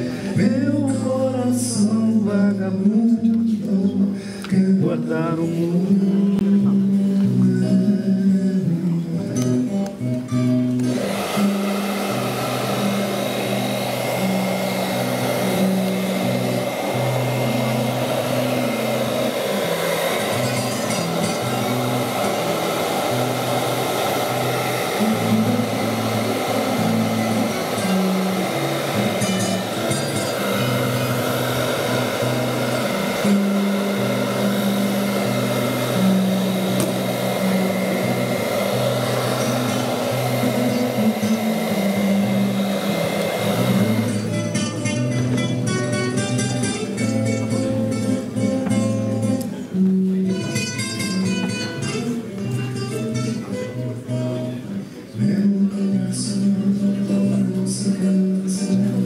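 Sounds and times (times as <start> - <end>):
hair dryer running: 10.8 - 44.8.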